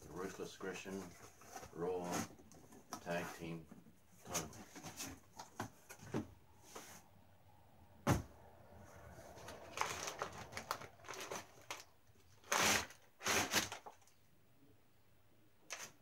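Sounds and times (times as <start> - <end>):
plastic packaging crinkling: 9.3 - 14.2.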